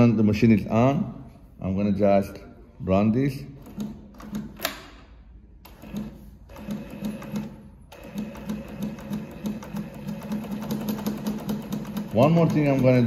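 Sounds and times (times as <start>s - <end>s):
industrial sewing machine clattering: 5.8s - 13.0s.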